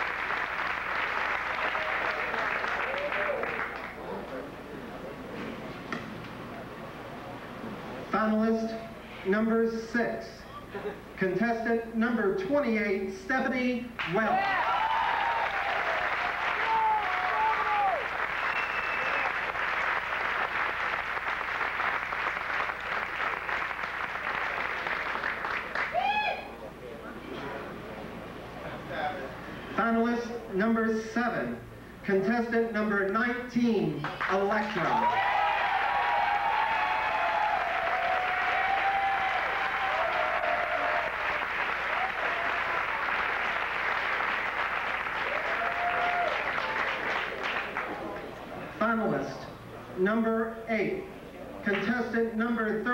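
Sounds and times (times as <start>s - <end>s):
crowd applauding: 0.0s - 4.5s, 14.0s - 26.5s, 34.0s - 48.6s.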